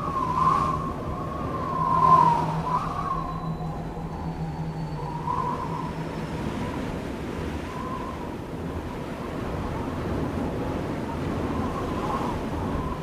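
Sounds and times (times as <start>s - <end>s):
wind rushing on microphone: 0.0s - 13.0s.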